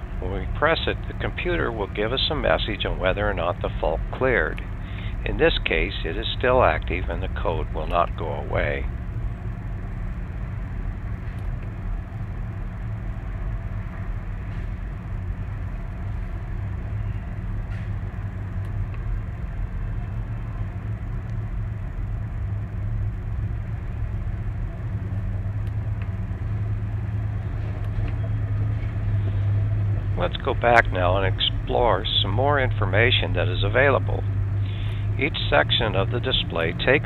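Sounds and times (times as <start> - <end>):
diesel engine idling: 0.0 - 37.0.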